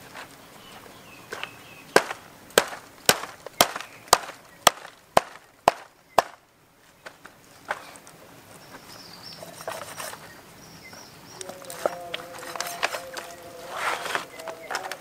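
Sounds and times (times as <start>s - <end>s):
cleaver chopping on wooden block: 2.0s - 6.4s.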